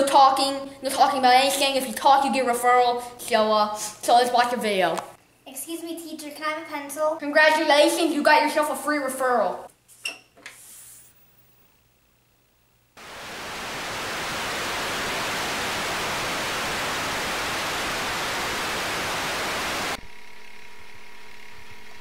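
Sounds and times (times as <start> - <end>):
television static hiss: 10.9 - 22.0.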